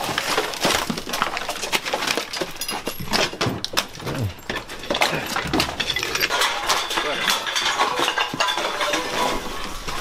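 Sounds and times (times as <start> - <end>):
junk clattering and rustling: 0.0 - 10.0.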